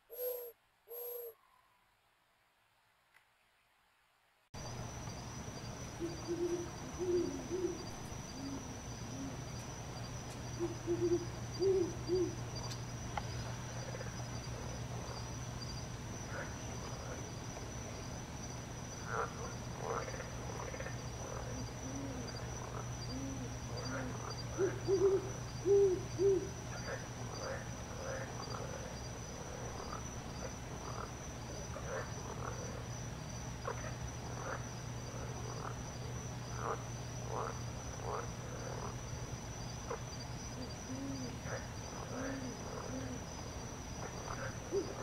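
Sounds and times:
owl hooting: 0.0 - 1.8, 6.0 - 9.4, 10.6 - 12.4, 23.0 - 26.6, 40.5 - 43.2, 44.3 - 45.0
higher bird calls: 0.0 - 1.9
high insect trill: 0.1 - 1.4, 4.6 - 45.0.

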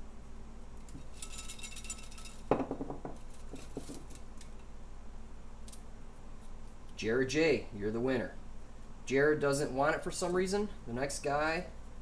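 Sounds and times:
paper slips rattling in a cup: 0.8 - 2.5.

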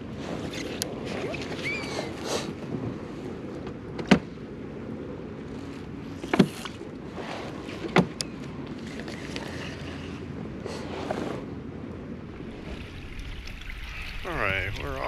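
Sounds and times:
water noise: 0.0 - 3.6, 4.3 - 15.0
low wind: 0.0 - 15.0.

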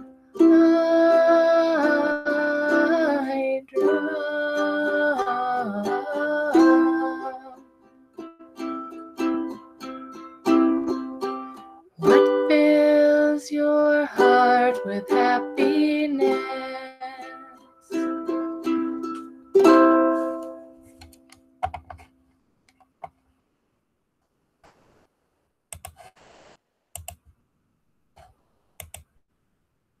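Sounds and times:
ukulele chords strummed: 0.0 - 21.6.

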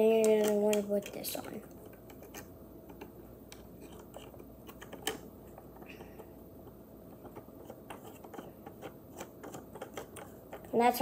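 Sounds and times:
craft pieces clicking and tapping: 0.1 - 10.8.

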